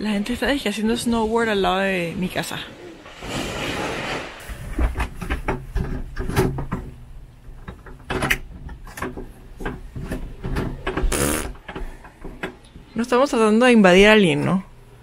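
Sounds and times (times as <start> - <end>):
wooden knocks and clunks: 4.6 - 7.0.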